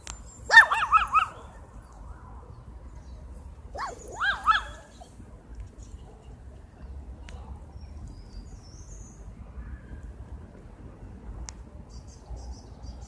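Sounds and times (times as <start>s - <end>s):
small dog yapping: 0.5s - 1.4s, 3.7s - 5.1s.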